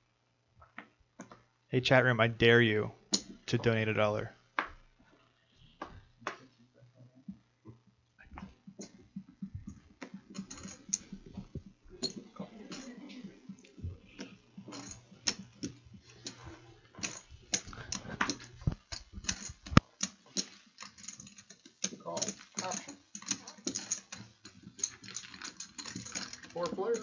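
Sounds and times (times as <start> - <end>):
small clicks and clacks: 7.3 - 27.0.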